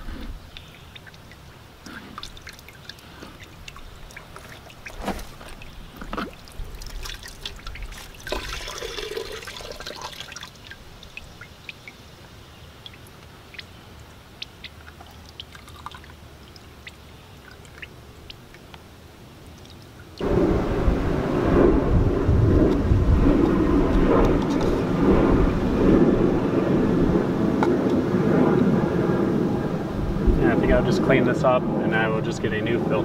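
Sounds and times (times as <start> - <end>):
liquid dripping: 0.0 - 12.0, 12.8 - 20.2.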